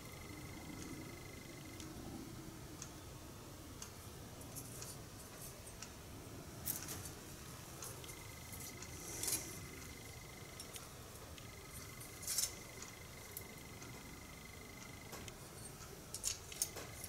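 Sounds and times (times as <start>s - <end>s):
thin steady high tone: 0.0s - 17.0s
metal tools clinking: 11.8s - 12.7s.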